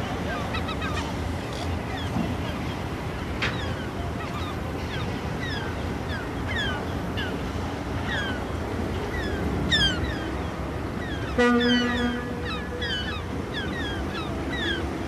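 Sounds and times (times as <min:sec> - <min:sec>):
deep buzzy horn blast: 0:11.4 - 0:12.5.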